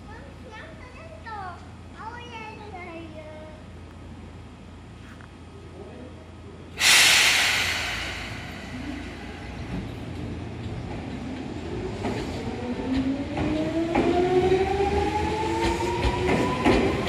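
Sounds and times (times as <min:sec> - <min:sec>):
air hiss: 0:06.8 - 0:10.3.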